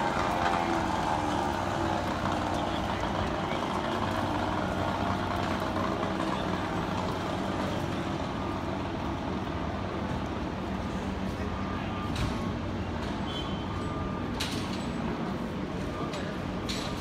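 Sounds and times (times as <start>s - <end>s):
low engine hum: 0.0s - 11.4s
street traffic noise: 0.0s - 17.0s.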